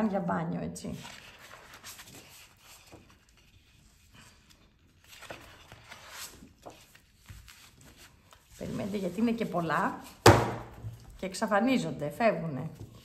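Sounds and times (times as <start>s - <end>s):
paper sheets rustling: 0.9s - 11.2s.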